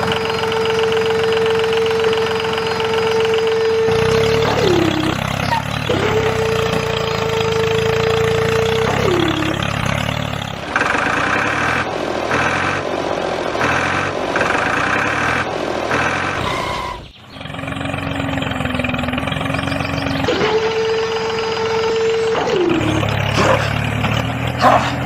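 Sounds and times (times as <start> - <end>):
tractor engine running: 0.0 - 25.0
high-pitched on-off pulses: 3.2 - 10.0.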